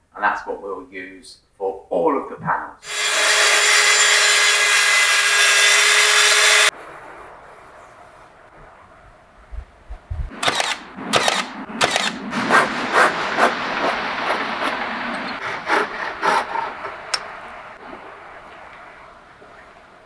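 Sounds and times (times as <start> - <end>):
hand saw rasping through wood: 2.8 - 6.7.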